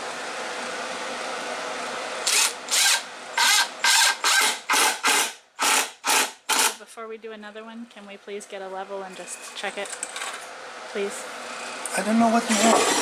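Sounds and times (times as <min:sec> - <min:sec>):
impact driver short bursts: 0:02.2 - 0:06.8.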